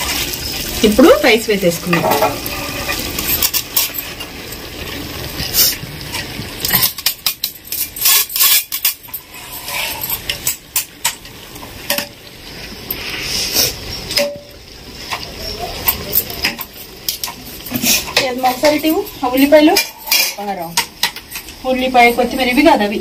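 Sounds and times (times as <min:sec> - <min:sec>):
metal spatula scraping and clinking: 0:01.8 - 0:04.3, 0:05.6 - 0:11.2, 0:15.1 - 0:22.8.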